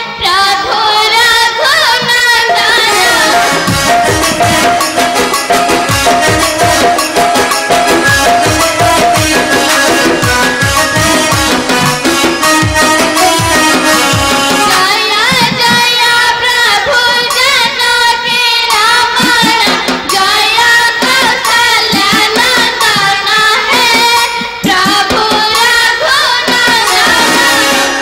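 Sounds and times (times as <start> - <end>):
hand drum: 2.0 - 16.1, 21.0 - 27.9.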